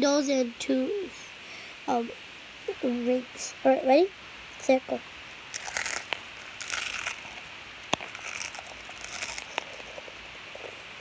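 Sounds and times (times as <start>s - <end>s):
crunchy snacks being chewed: 5.5s - 10.9s.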